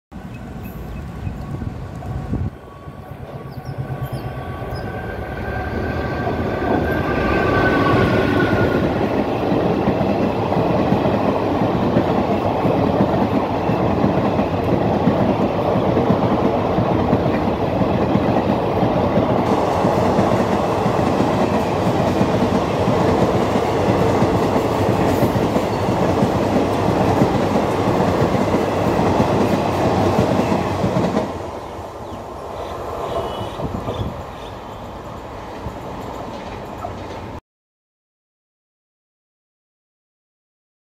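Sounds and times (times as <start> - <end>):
train passing at speed: 0.2 - 37.4
wheels clickety-clack on rail joints: 8.0 - 31.4, 32.0 - 37.4
two-note train horn: 33.0 - 33.8.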